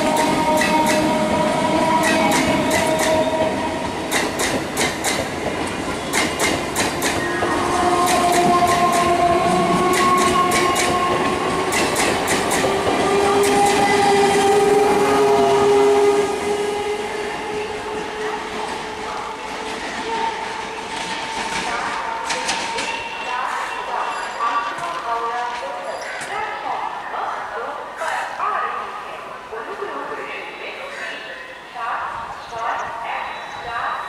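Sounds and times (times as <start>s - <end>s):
train wheels clicking over rail joints: 0.0s - 3.3s, 4.0s - 14.6s
steady train whine: 0.0s - 34.0s.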